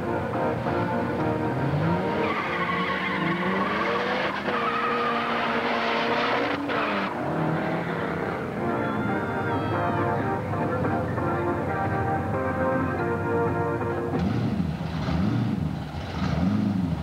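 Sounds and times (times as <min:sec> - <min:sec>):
car engine revving: 0:00.5 - 0:08.8, 0:14.1 - 0:17.0
tyres squealing: 0:02.0 - 0:05.6.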